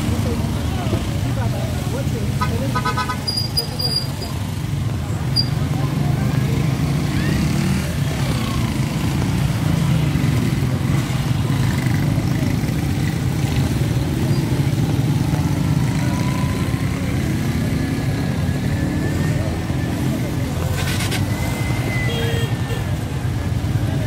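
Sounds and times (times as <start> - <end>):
motorcycles and car passing: 0.0 - 24.0.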